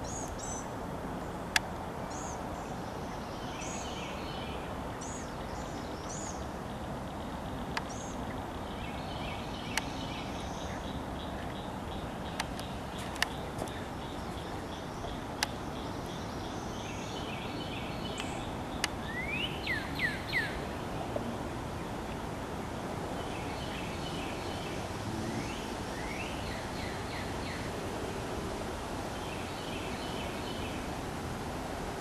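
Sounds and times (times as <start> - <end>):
birds chirping: 0.0 - 22.3
steady outdoor hiss: 0.0 - 32.0.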